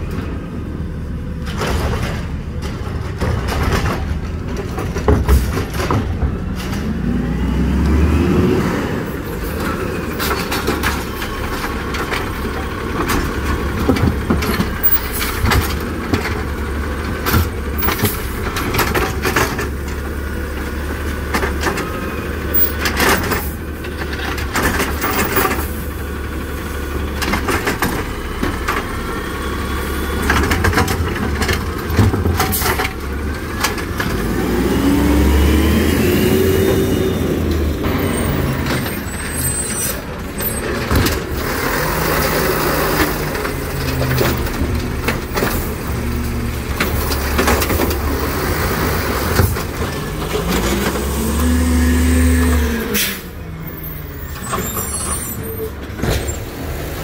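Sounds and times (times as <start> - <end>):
garbage truck engine hum: 0.0 - 57.0
carts knocking and clattering: 1.4 - 7.2, 9.4 - 25.9, 27.0 - 29.0, 30.2 - 34.4, 36.6 - 51.2.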